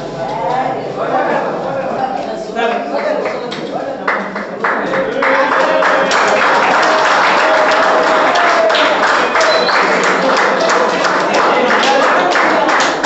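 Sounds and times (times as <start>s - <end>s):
people clapping: 2.7s - 13.0s
voices calling out: 4.9s - 13.0s.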